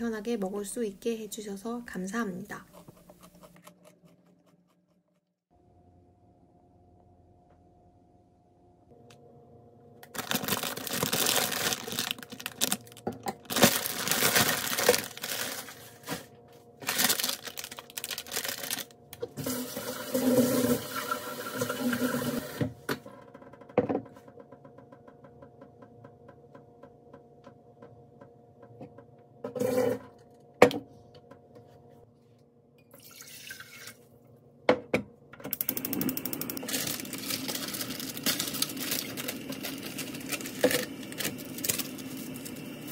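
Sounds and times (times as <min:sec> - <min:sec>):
kitchen tap running: 0:19.3 - 0:22.7, 0:33.0 - 0:34.0.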